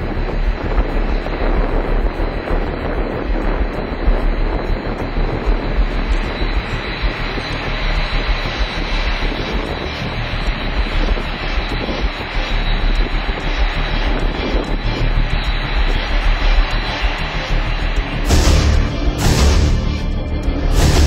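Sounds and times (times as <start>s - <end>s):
combine harvester drone: 0.0s - 21.0s.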